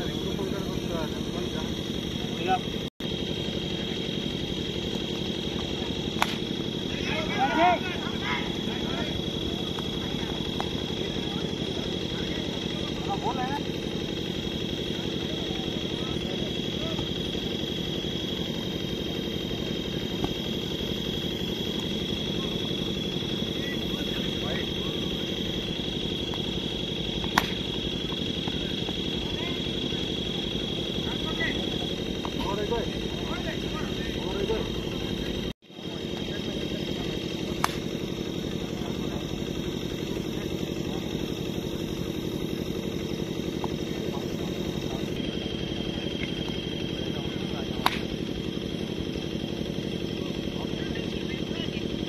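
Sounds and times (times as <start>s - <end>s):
high whine: 0.0s - 52.0s
low engine drone: 0.0s - 52.0s
bat hitting plastic ball: 6.1s - 6.5s, 27.2s - 27.8s, 37.5s - 37.9s, 47.8s - 48.2s
sharp click: 37.6s - 37.9s.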